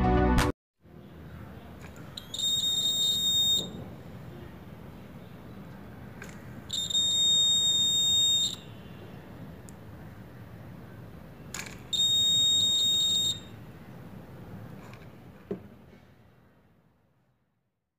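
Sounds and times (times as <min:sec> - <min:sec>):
high-pitched buzzer beep: 0:02.2 - 0:03.8, 0:06.7 - 0:08.9, 0:11.9 - 0:13.5.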